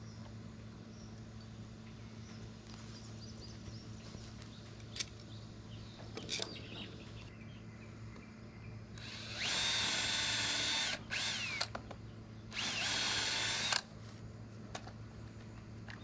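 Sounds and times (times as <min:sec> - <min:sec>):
power drill drilling into wood: 0:09.0 - 0:11.7, 0:12.6 - 0:13.9.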